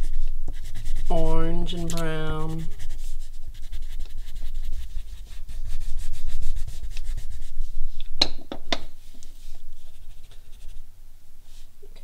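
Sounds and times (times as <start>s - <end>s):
crayon scratching on paper: 0.0s - 7.7s, 9.7s - 10.8s.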